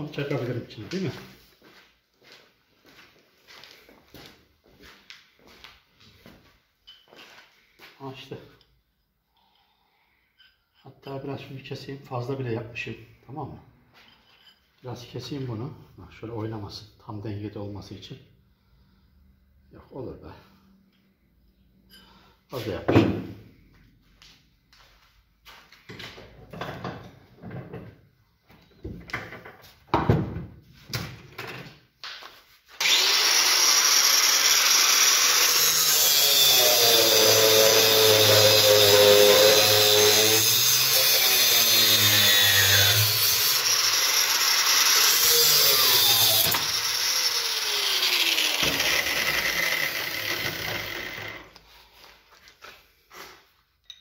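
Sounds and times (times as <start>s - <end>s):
angle grinder cutting metal: 32.8s - 51.6s.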